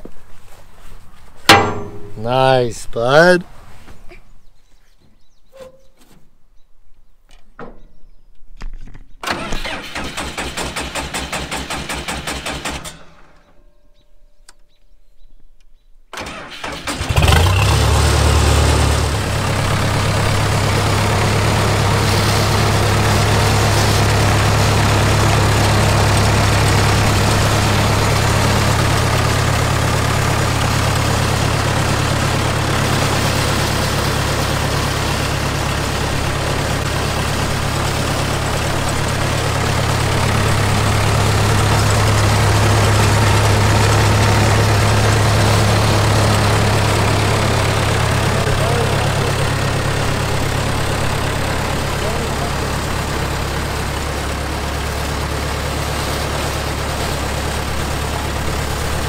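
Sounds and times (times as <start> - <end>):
engine starting and idling: 9.2 - 13.6, 16.1 - 59.0.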